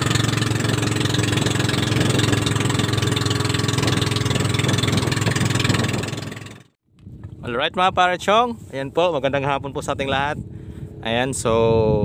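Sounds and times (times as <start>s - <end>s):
boat motor running: 0.0s - 6.8s.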